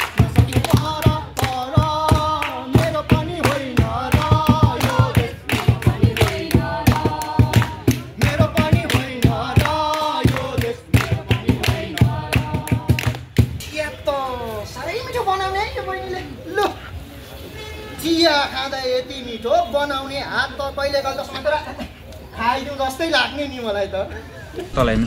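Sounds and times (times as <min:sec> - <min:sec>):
people singing: 0:00.0 - 0:13.3
rhythmic hand clapping: 0:00.0 - 0:13.6.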